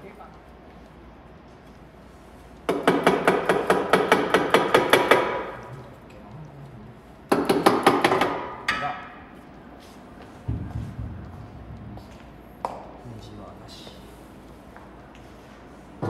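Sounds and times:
pneumatic impact wrench hammering: 0:02.7 - 0:05.6.

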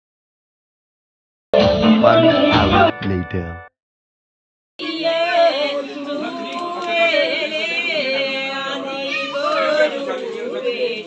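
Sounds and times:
group of voices singing: 0:04.8 - 0:11.0.

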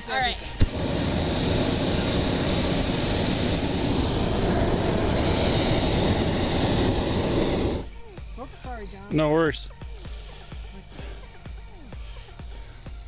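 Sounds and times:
propane burner firing: 0:00.0 - 0:08.3.

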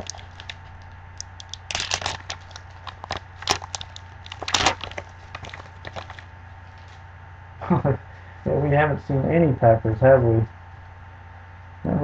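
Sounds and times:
foil wrapper tearing and crinkling: 0:00.0 - 0:06.3.

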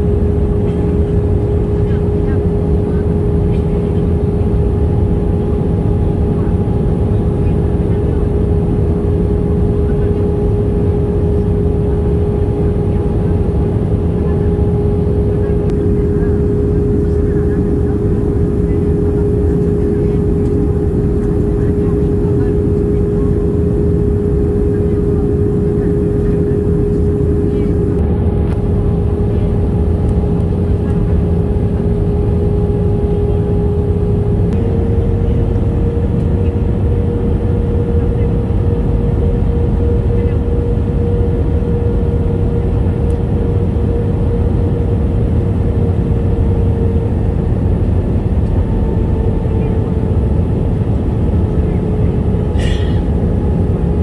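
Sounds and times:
jet engine and airflow rumble: 0:00.0 - 0:54.0
mid-pitched hum tone: 0:00.0 - 0:54.0.

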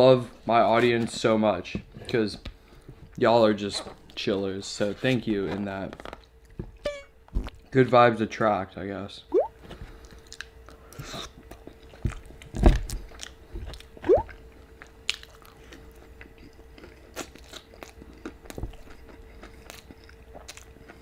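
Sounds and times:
person chewing food: 0:13.1 - 0:21.0.

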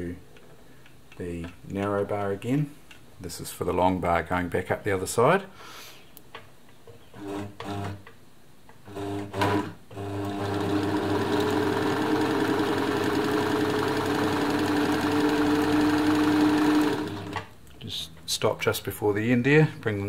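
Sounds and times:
sewing machine motor hum: 0:07.2 - 0:08.0, 0:08.9 - 0:17.5
sewing machine stitching: 0:07.2 - 0:08.0, 0:08.9 - 0:17.5.

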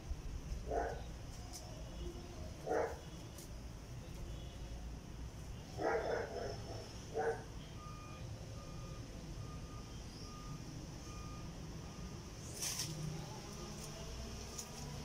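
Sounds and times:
reversing alarm beeping: 0:06.6 - 0:14.3.

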